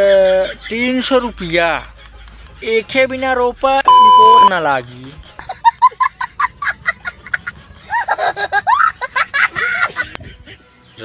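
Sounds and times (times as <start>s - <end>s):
young child laughing: 5.3s - 10.6s.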